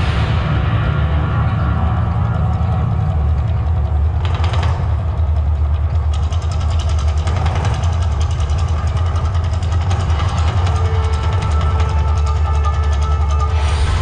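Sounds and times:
deep eruption rumble: 0:13.5 - 0:14.0.

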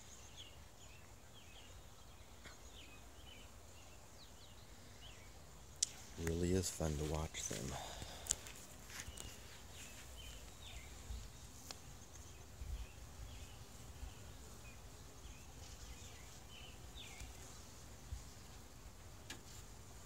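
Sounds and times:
small bird chirping: 0:08.3 - 0:17.5.

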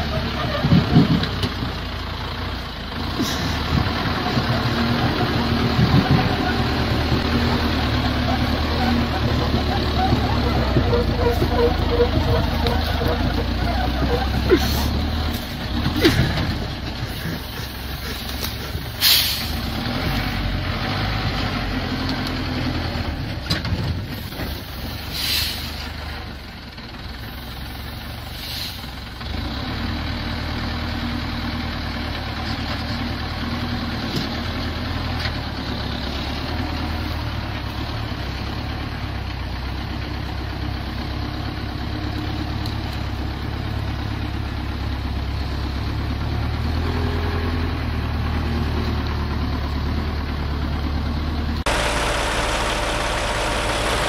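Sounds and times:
truck engine running: 0:00.0 - 0:54.0
short hisses: 0:19.0 - 0:19.6.

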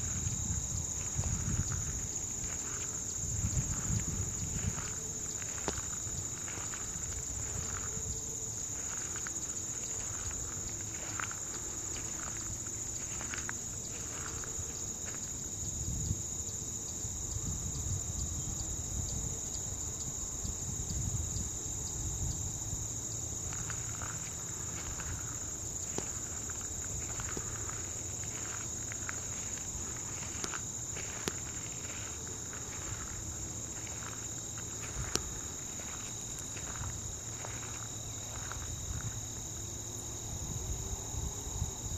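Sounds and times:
footsteps on gravel: 0:00.0 - 0:15.4, 0:23.4 - 0:39.7
crickets and insects chirping: 0:00.0 - 0:41.9.

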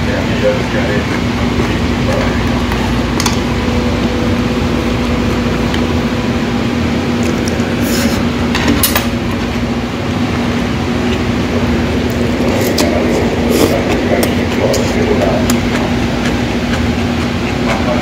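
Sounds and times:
steady mechanical hum: 0:00.0 - 0:18.0.

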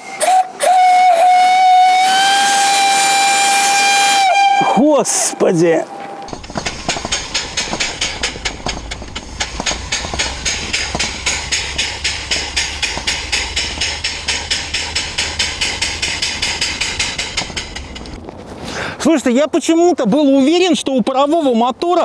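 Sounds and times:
steam engine chuffing: 0:00.0 - 0:05.3, 0:06.3 - 0:18.3.

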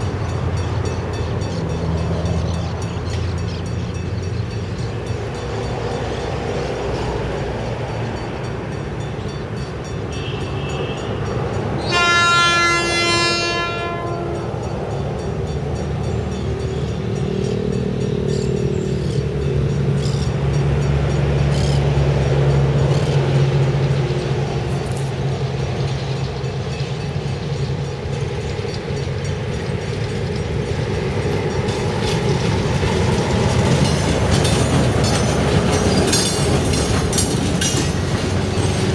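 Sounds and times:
diesel locomotive engine running: 0:00.0 - 0:38.9
locomotive horn: 0:10.1 - 0:14.8.

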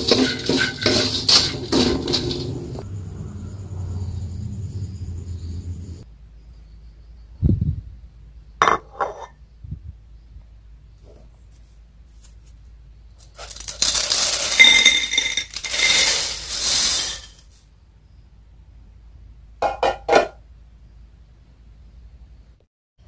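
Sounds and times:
dry noodles clattering onto plate: 0:00.0 - 0:02.6, 0:13.2 - 0:17.5.

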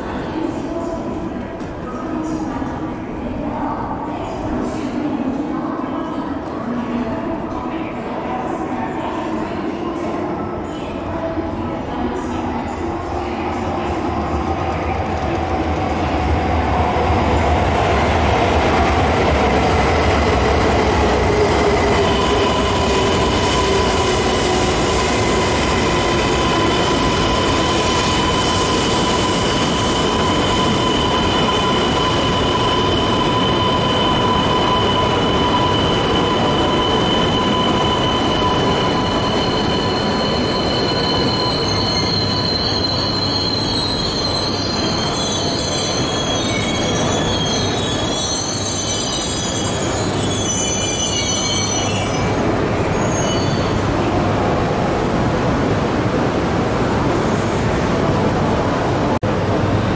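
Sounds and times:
train braking whine: 0:21.9 - 0:53.9
train rumble and hiss: 0:52.4 - 0:59.9.

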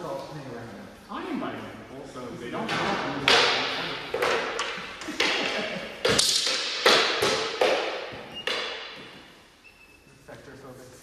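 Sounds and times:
wooden sticks clacking: 0:02.7 - 0:09.1.

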